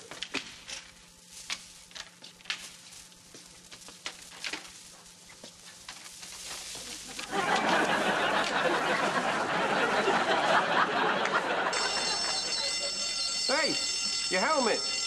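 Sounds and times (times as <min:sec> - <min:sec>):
studio audience laughing: 0:07.1 - 0:13.2.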